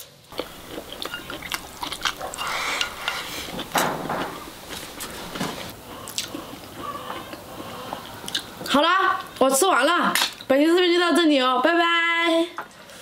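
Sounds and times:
chewing: 0:00.3 - 0:09.3.

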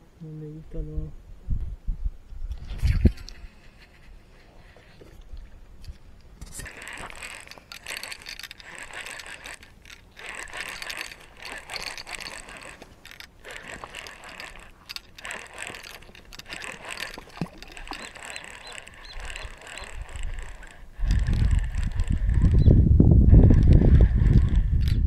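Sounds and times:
fishing reel clicking whir: 0:02.5 - 0:25.0.

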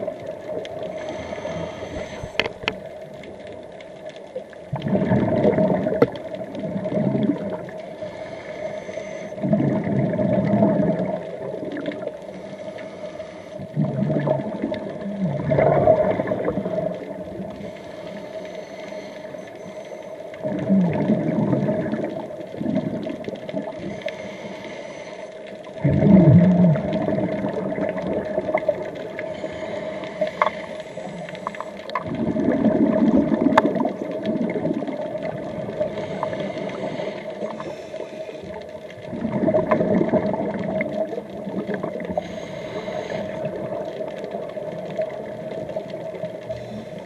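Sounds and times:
diver breathing through regulator: 0:00.8 - 0:02.8, 0:07.9 - 0:09.8, 0:12.3 - 0:14.0, 0:17.6 - 0:20.2, 0:23.8 - 0:26.2, 0:29.2 - 0:31.9, 0:35.8 - 0:38.6, 0:42.0 - 0:43.6, 0:46.4 - 0:47.0
exhaled bubbles rushing: 0:04.7 - 0:07.9, 0:09.4 - 0:12.2, 0:13.7 - 0:17.6, 0:20.4 - 0:23.9, 0:25.8 - 0:29.3, 0:30.2 - 0:42.2, 0:43.3 - 0:46.5.

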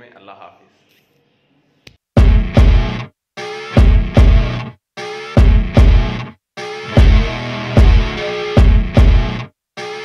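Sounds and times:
music with punchy beats: 0:02.2 - 0:10.0.

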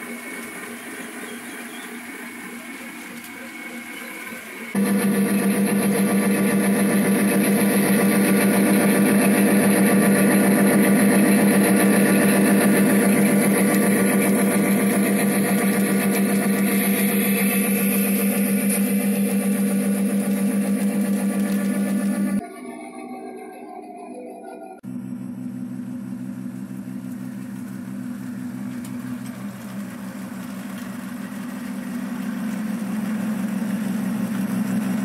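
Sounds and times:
diesel locomotive engine sound: 0:00.0 - 0:35.0.

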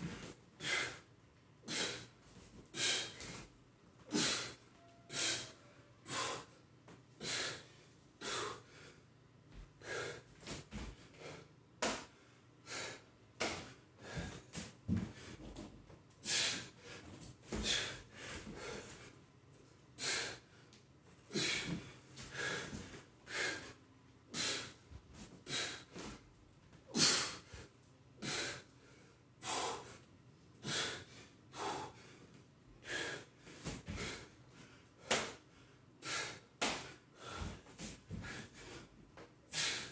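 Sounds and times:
man breathing hard: 0:00.0 - 0:03.5, 0:04.1 - 0:06.6, 0:07.2 - 0:15.6, 0:16.2 - 0:19.2, 0:19.9 - 0:20.7, 0:21.3 - 0:26.2, 0:26.9 - 0:39.9.

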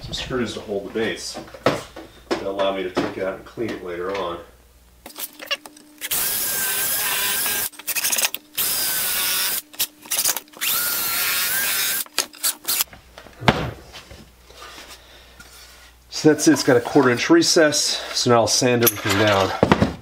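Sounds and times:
cordless drill whining: 0:06.0 - 0:12.9.

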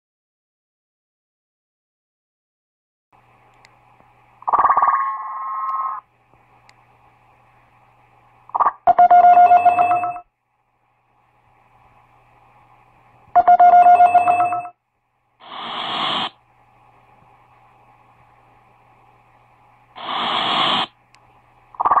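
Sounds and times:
faint steady hum: 0:03.2 - 0:22.0
telephone bell ringing: 0:09.0 - 0:10.2, 0:13.4 - 0:14.7
burst of hiss: 0:15.4 - 0:16.4, 0:20.0 - 0:20.9.

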